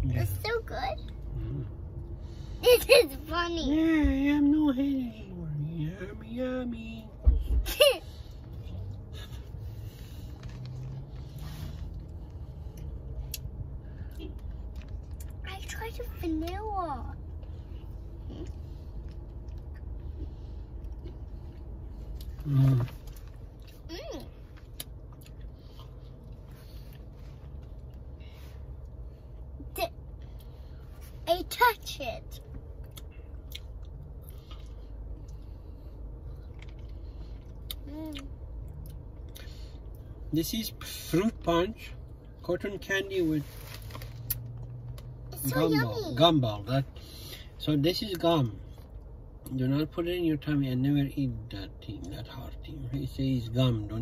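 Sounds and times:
low car interior hum: 0:00.0 - 0:54.0
child chewing ice pop: 0:17.3 - 0:28.1, 0:32.5 - 0:40.0.

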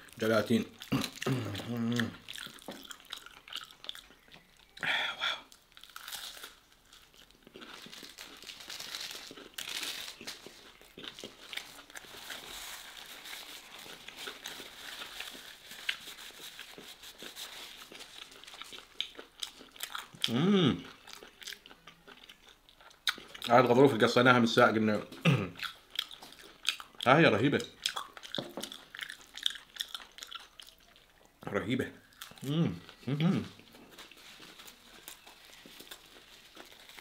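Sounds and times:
chewing and crunching: 0:00.0 - 0:04.9, 0:05.5 - 0:24.0, 0:25.0 - 0:37.0
paper napkin crinkling: 0:11.5 - 0:18.6, 0:33.8 - 0:37.0.

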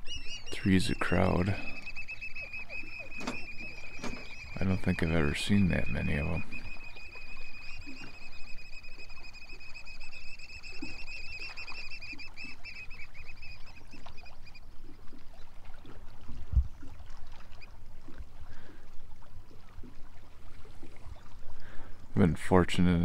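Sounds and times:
birds piping trilled whistle: 0:00.0 - 0:14.6.

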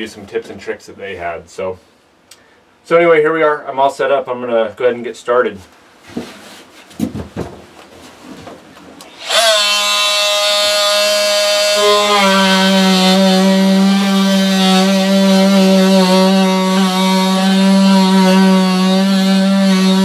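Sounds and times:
handling knocks: 0:07.0 - 0:07.7
multi-tool buzzing cutting plywood: 0:09.0 - 0:20.0.

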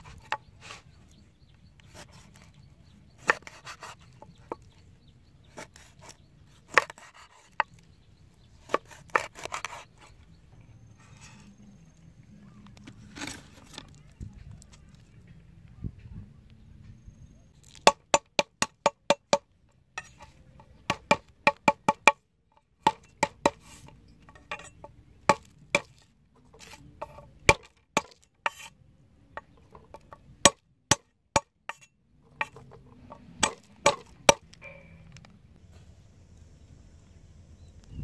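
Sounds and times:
cleaver chopping on wooden board: 0:03.2 - 0:04.7, 0:05.5 - 0:07.8, 0:08.6 - 0:09.9, 0:17.6 - 0:19.4, 0:20.0 - 0:22.2, 0:22.8 - 0:26.0, 0:26.6 - 0:28.7, 0:29.4 - 0:34.5.

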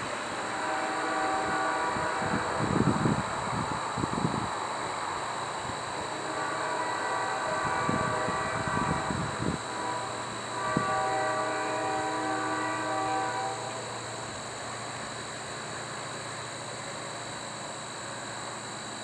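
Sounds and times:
locomotive air horn chord: 0:00.0 - 0:03.4, 0:05.9 - 0:16.6
steady hiss: 0:00.0 - 0:19.0.

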